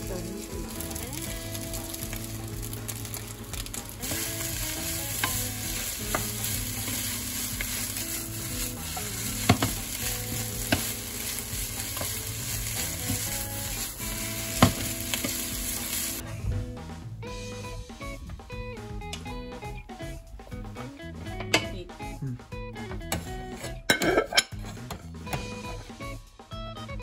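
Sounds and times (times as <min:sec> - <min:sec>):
food sizzling in a frying pan: 0:00.0 - 0:16.2
spatula scraping a pan: 0:00.2 - 0:16.2, 0:23.1 - 0:24.9
spatula knocking against pan: 0:09.2 - 0:13.3.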